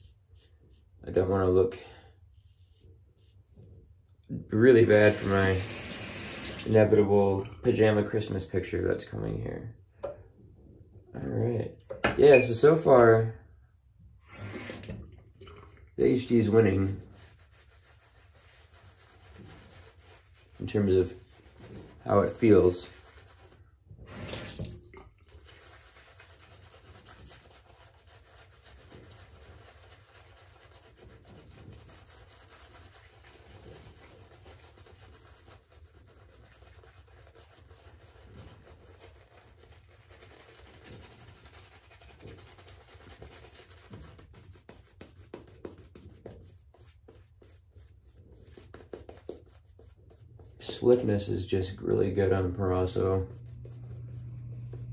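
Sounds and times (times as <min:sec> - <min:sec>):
shaving brush swishing on skin: 0:00.0 - 0:01.0, 0:02.3 - 0:03.6, 0:04.8 - 0:06.9, 0:16.0 - 0:54.9.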